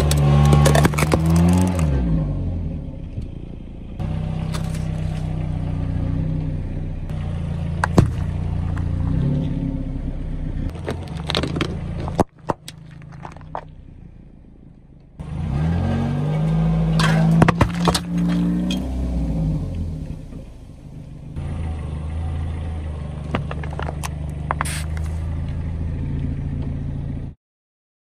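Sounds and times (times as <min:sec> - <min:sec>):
tyre crushing packaging: 0:00.0 - 0:01.8, 0:10.7 - 0:13.6
car engine running: 0:00.0 - 0:27.4.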